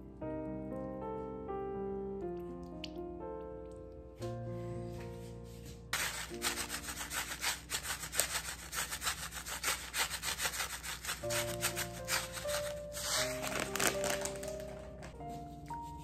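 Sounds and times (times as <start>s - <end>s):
soft piano music: 0.0s - 8.8s, 11.0s - 16.0s
hand grinder rasping seeds: 6.0s - 14.6s.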